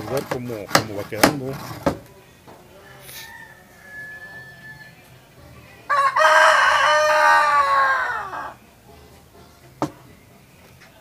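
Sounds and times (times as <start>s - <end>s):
rooster crowing: 2.8s - 5.1s, 5.9s - 8.6s.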